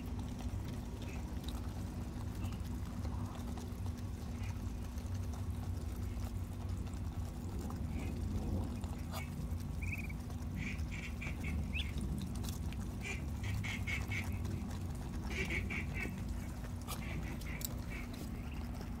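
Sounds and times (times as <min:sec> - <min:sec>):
steady low hum: 0:00.0 - 0:19.0
ducks quacking: 0:07.9 - 0:12.0, 0:12.8 - 0:18.8.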